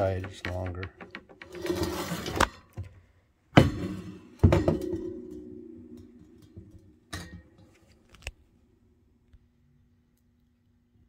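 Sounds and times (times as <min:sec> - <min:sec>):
metal knocks on workbench: 0:03.6 - 0:05.1.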